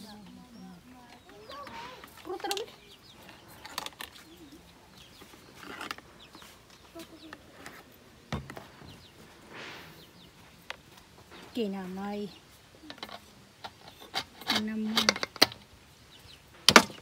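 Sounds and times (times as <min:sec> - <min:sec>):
faint bird chirps: 0:00.0 - 0:07.8
faint voices: 0:00.0 - 0:15.3.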